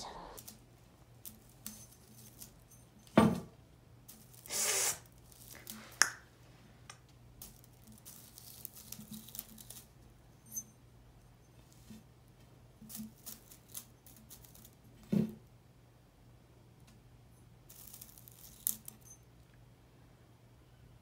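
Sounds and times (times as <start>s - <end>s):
faint low hum: 0.0s - 21.0s
thump: 3.2s - 3.5s
dry stems rustling: 4.0s - 6.1s, 7.3s - 10.0s, 12.8s - 15.0s, 17.7s - 19.0s.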